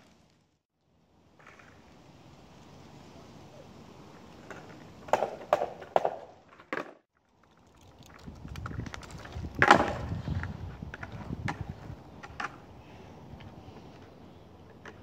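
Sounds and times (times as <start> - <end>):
skateboard wheels rolling: 1.2 - 7.0, 7.9 - 15.0
skateboard deck clacks: 4.4 - 7.0.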